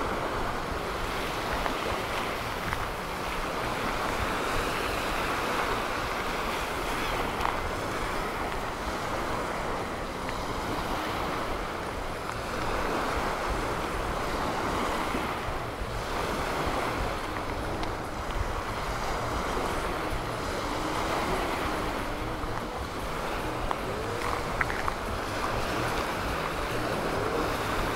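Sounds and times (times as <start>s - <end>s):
surf washing onto beach: 0.0s - 27.9s
wind buffeting microphone: 0.0s - 27.9s.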